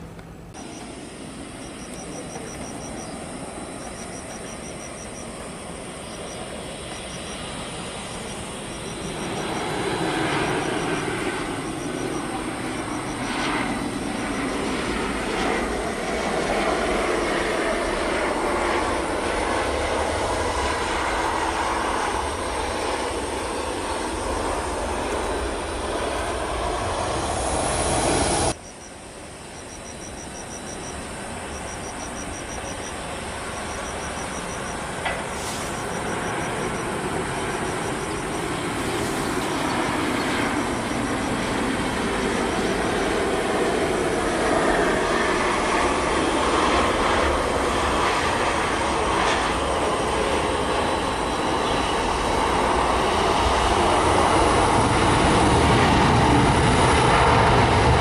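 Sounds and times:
jet aircraft approaching: 0.0 - 58.0
jet aircraft landing: 0.0 - 58.0
faint rapid high chirps: 1.6 - 5.4, 6.0 - 9.8, 28.6 - 41.2.

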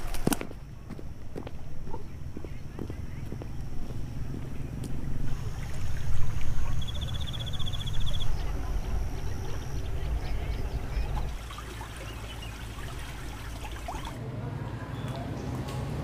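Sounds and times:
steady low rumble: 0.4 - 11.4.

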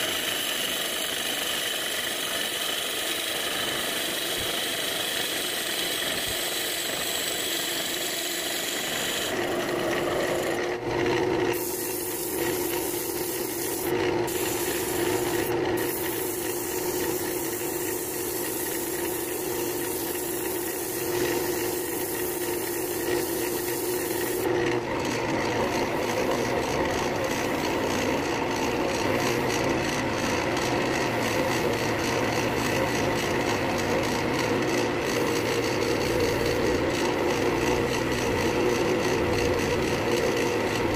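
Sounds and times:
sandpaper rubbing on spinning wood: 0.0 - 10.6, 11.2 - 24.5
drill bit boring into wood: 0.0 - 40.9
wood lathe motor humming: 0.0 - 40.9.

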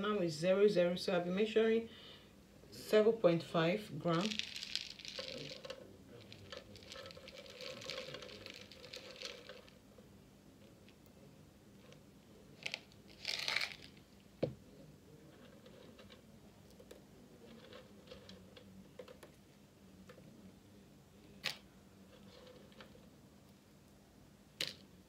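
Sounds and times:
plastic bag crinkling: 4.1 - 9.8, 12.6 - 14.0
pellets ticking onto paper: 4.2 - 9.6.

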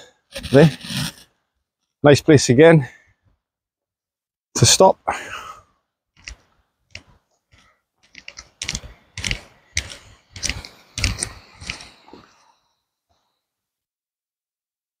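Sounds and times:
footsteps on a dirt path: 8.6 - 12.0.

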